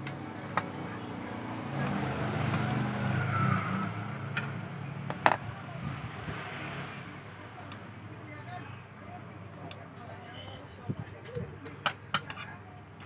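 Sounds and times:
vehicle engine passing by: 0:01.1 - 0:07.3.

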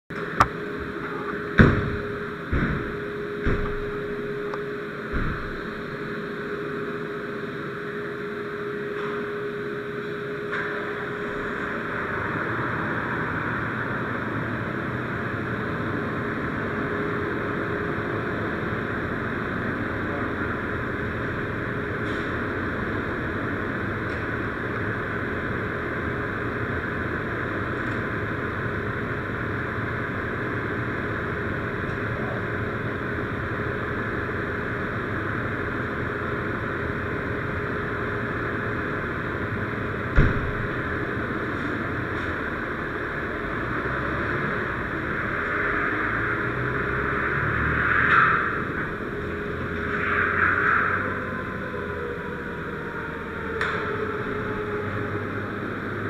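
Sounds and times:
diesel engine running: 0:00.1 - 0:56.0
heavy thumps: 0:01.6 - 0:04.2.

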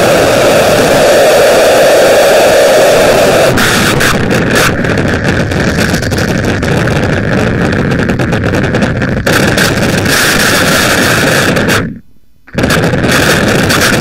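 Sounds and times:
harsh noise rumbling and crackling: 0:00.0 - 0:14.0.

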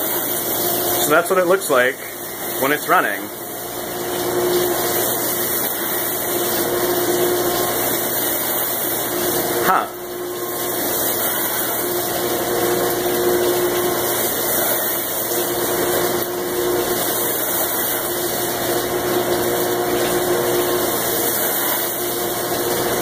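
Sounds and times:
dishwasher pump humming: 0:00.0 - 0:23.0
water spraying onto steel: 0:00.0 - 0:23.0.

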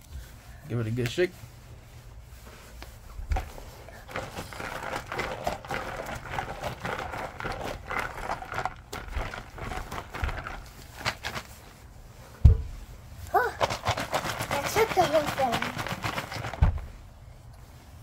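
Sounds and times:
rocks rattling in tumbler barrel: 0:04.0 - 0:11.5, 0:13.4 - 0:17.0.

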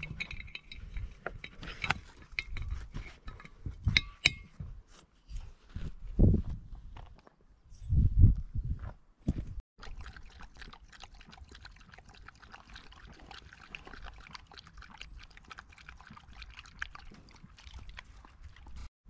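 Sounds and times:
dog lapping water: 0:09.8 - 0:18.9.

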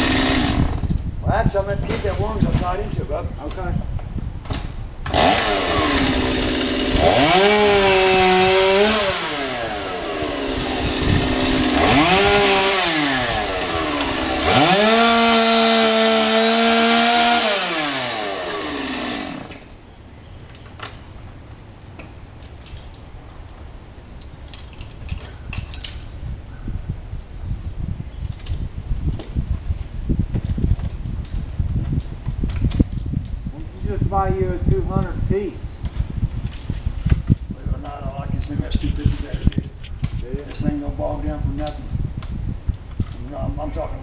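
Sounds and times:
chainsaw cutting wood: 0:00.0 - 0:00.9, 0:05.0 - 0:19.8.

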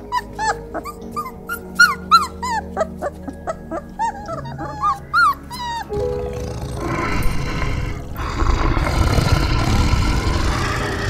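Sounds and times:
animal squeaking calls: 0:00.0 - 0:07.3.

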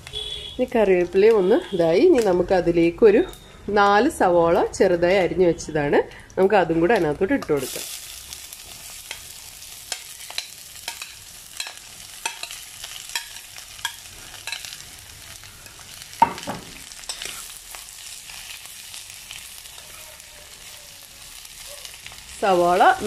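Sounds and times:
onions sizzling in oil: 0:06.5 - 0:23.0
spoon scraping a pan: 0:08.6 - 0:14.8, 0:16.2 - 0:17.6.

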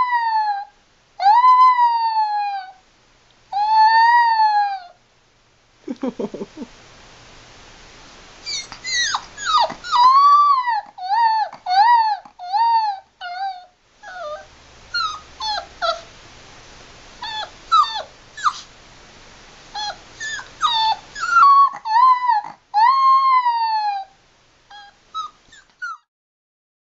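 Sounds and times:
puppy howling and yelping: 0:00.0 - 0:02.8, 0:03.5 - 0:05.0, 0:08.4 - 0:16.1, 0:17.2 - 0:18.7, 0:19.7 - 0:26.1.

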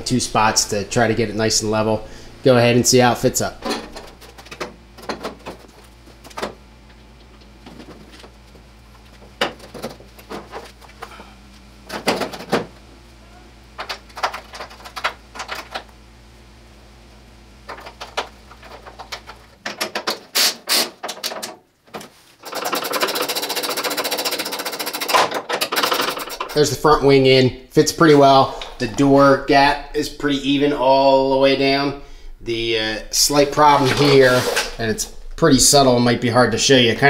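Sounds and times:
rapidly pulsing mechanical buzz: 0:00.0 - 0:21.0, 0:22.4 - 0:30.8.

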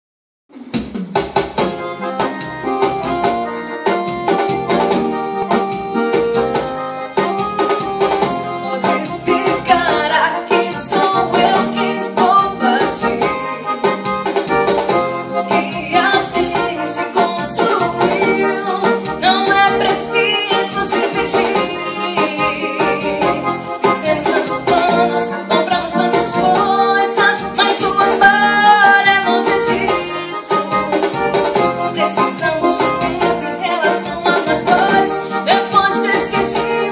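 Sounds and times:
keyboard playing quick notes: 0:00.5 - 0:36.9
steady keyboard beat: 0:00.5 - 0:36.9
woman singing: 0:08.5 - 0:13.6, 0:15.4 - 0:36.9.

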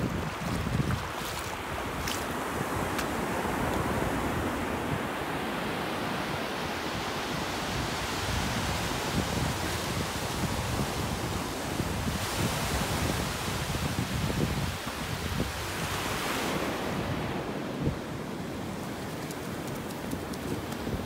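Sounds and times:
wind buffeting microphone: 0:00.0 - 0:04.6
ocean surf breaking on beach: 0:00.0 - 0:21.0.

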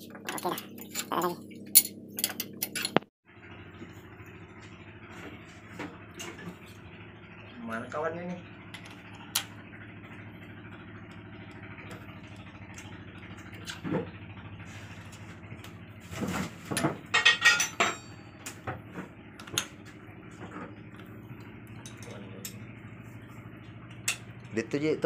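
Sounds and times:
metal parts clinking: 0:00.3 - 0:03.0, 0:17.1 - 0:18.1
loud ringing metal clanks: 0:16.7 - 0:18.9.

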